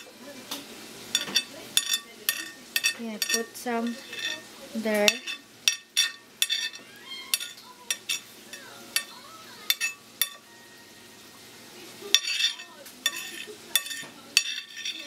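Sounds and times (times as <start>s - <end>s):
fingertips tapping plate: 1.1s - 4.4s, 5.1s - 10.4s, 12.1s - 15.0s.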